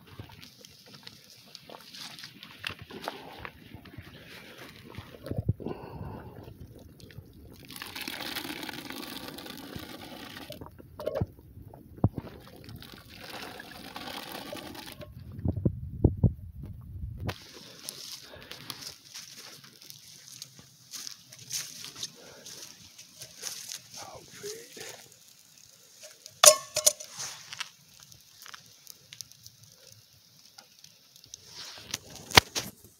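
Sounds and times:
water boiling hiss: 0.0 - 15.4, 17.2 - 32.9
wood fire crackling: 0.0 - 15.6, 16.7 - 32.9
metallic clang on steel drum: 26.4 - 27.0.

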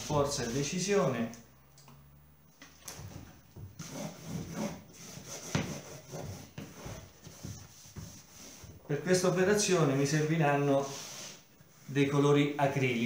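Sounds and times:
cloth scrubbing wooden frame: 3.8 - 9.4.

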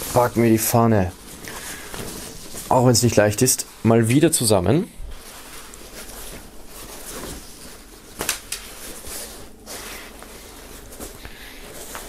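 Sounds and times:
fabric flag rustling: 0.0 - 12.0.

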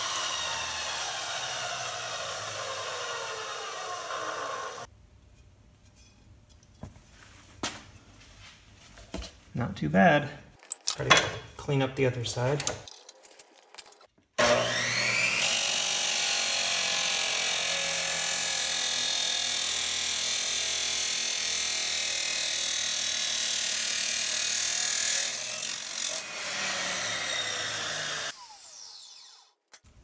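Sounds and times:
cut-off wheel grinding steel: 0.0 - 4.9, 13.1 - 17.2, 24.8 - 29.5
saw motor running: 0.0 - 4.9, 14.4 - 29.5.

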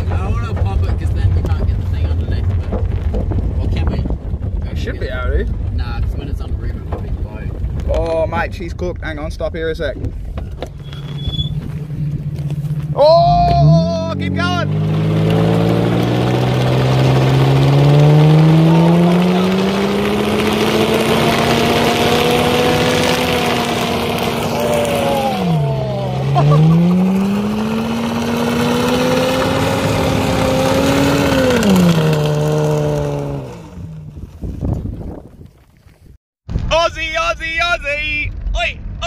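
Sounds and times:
tyre spinning on dirt: 0.0 - 8.2, 14.7 - 36.0
car engine at high revs: 10.2 - 34.6.

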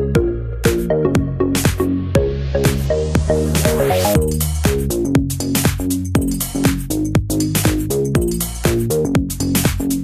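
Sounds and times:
electronic dance music: 0.2 - 6.9.

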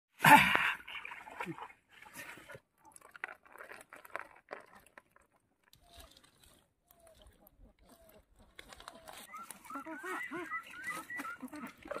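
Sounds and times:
dry plant stalks crunching: 5.8 - 12.0.

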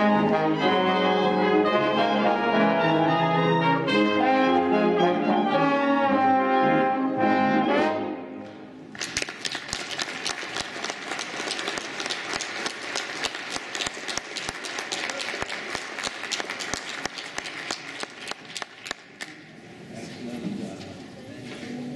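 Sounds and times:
audience applauding: 8.9 - 19.4.

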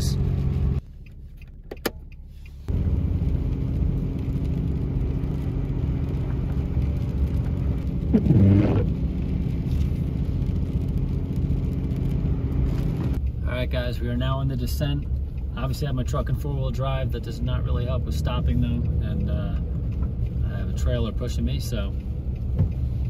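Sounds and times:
truck engine drone: 0.0 - 15.6.

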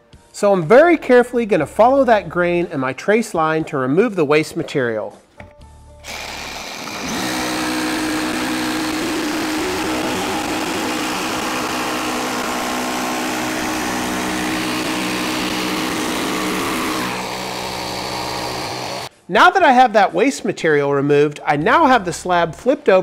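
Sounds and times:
jigsaw cutting wood: 6.0 - 19.1.

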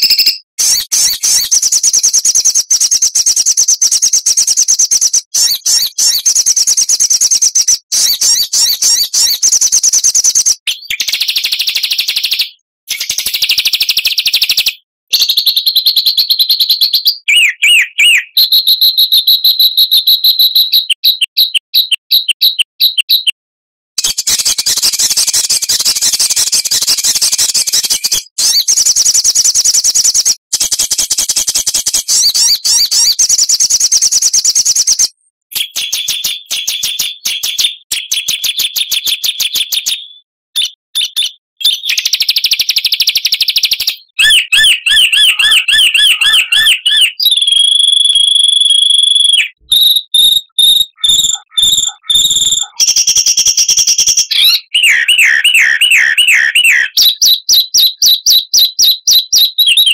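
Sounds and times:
songbird trilling and chattering: 0.0 - 11.5, 20.3 - 23.4, 43.9 - 59.9.

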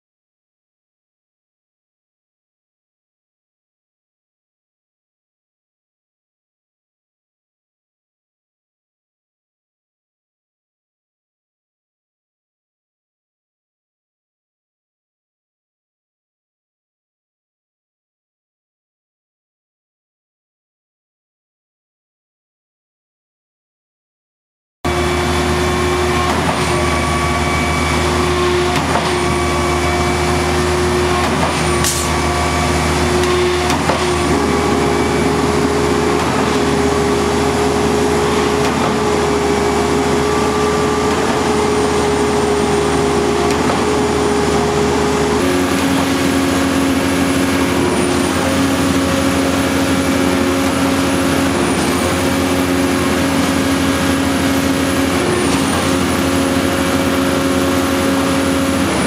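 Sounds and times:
diesel pump engine whining: 24.9 - 59.0.

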